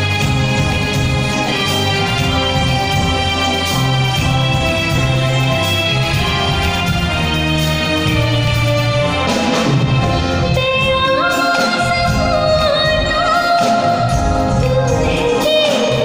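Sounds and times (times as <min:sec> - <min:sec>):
live band playing: 0:00.0 - 0:16.0
woman singing: 0:10.4 - 0:16.0.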